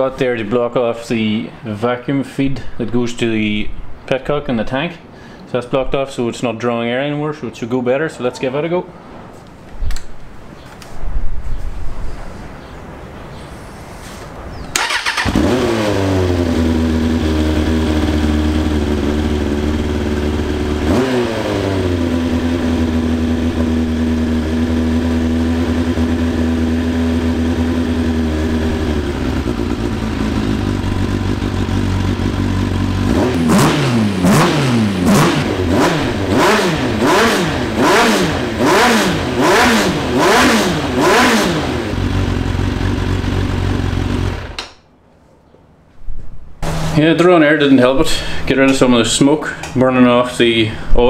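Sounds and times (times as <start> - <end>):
motorcycle engine revving: 14.7 - 44.6, 46.6 - 47.0
motorcycle engine starting: 14.7 - 44.8, 46.6 - 47.2
motorcycle engine idling: 14.8 - 37.0, 40.2 - 44.6.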